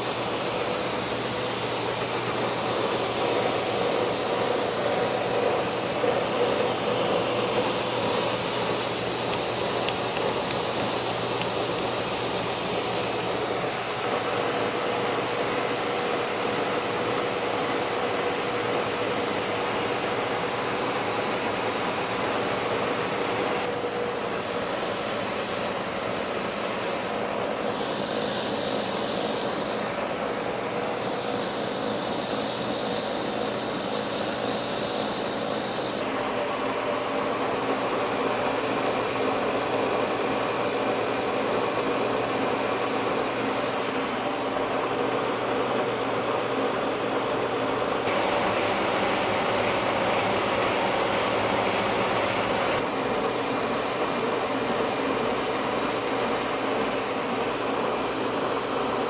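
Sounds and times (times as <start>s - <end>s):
milling machine cutting plastic: 0.0s - 20.3s, 48.0s - 53.5s.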